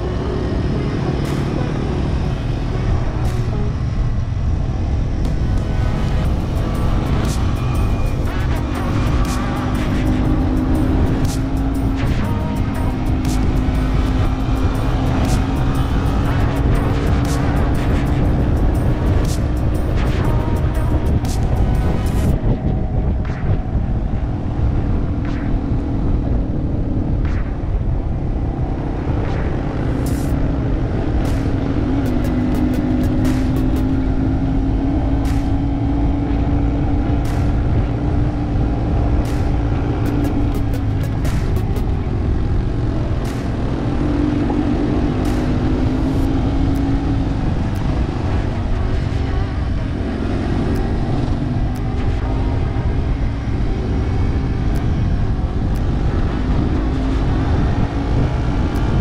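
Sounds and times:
motorcycle engine running: 0:00.0 - 0:59.0
wind and road noise: 0:00.0 - 0:59.0
sharp clicks: 0:31.2 - 0:34.1, 0:39.2 - 0:42.0.

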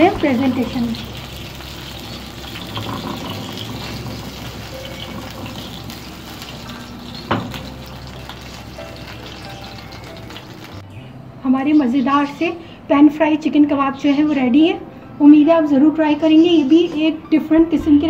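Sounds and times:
hot oil sizzling in frying pan: 0:00.0 - 0:10.8.

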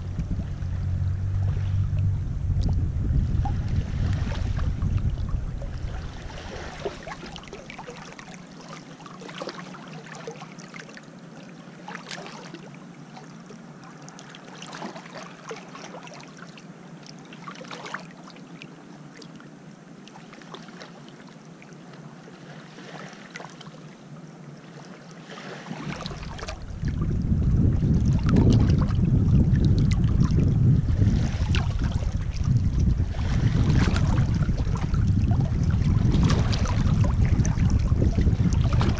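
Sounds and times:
wind buffeting microphone: 0:00.0 - 0:07.9, 0:25.8 - 0:38.9
small waves lapping over pebbles: 0:05.8 - 0:18.6, 0:20.1 - 0:27.0, 0:31.0 - 0:32.4.

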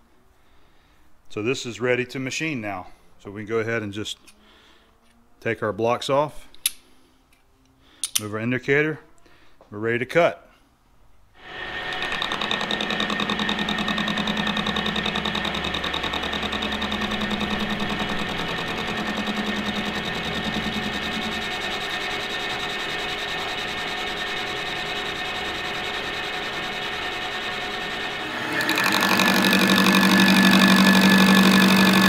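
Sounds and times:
lathe machine whine: 0:11.4 - 0:32.0.

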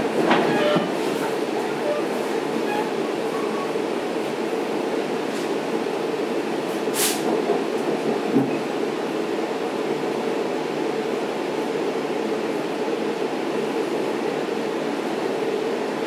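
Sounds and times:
wheels rumbling on track: 0:00.0 - 0:09.7
passing train: 0:00.0 - 0:16.0
short hiss: 0:07.0 - 0:07.3.

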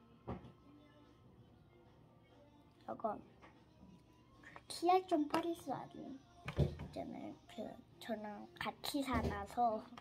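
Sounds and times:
faint background music: 0:00.0 - 0:10.0.

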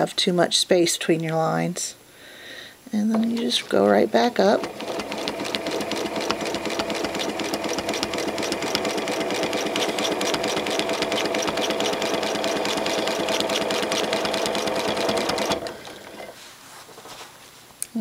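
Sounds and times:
sewing machine stitching: 0:03.4 - 0:16.3.

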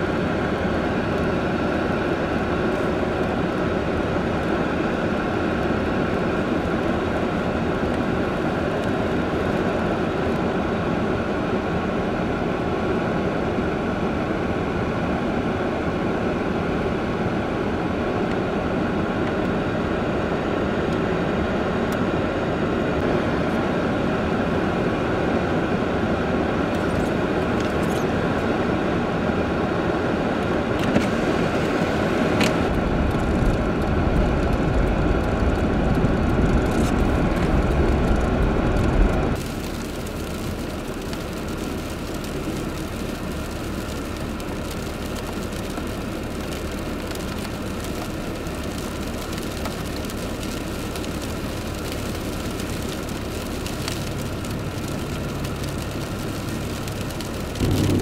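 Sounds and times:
wind gusts on microphone: 0:57.6 - 0:58.0.

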